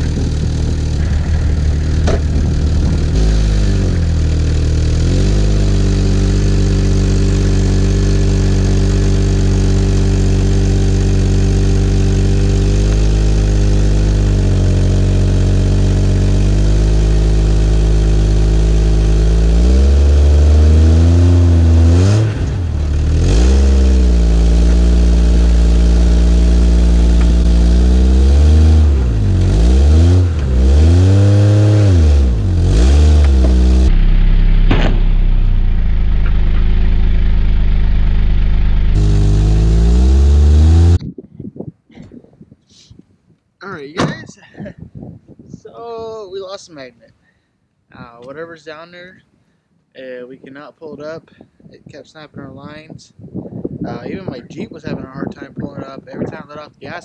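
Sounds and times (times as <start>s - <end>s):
car engine revving: 0.0s - 41.0s.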